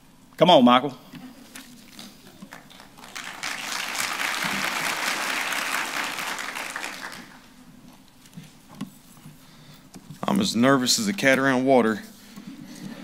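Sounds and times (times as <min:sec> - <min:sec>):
congregation applauding: 0:02.5 - 0:07.6.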